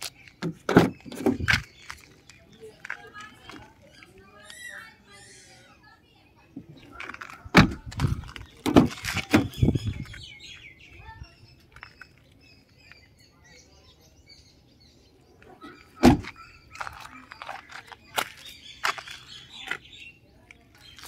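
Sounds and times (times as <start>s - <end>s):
small birds chirping: 0.0s - 21.0s
loud sharp thump: 16.0s - 16.3s.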